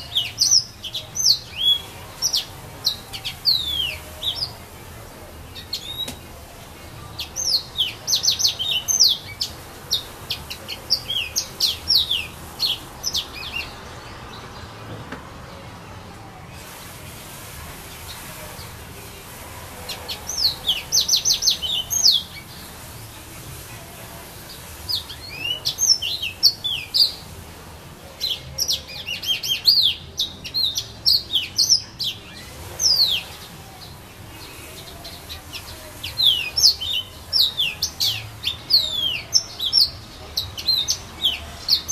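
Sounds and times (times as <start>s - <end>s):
canary singing: 0.0s - 41.9s.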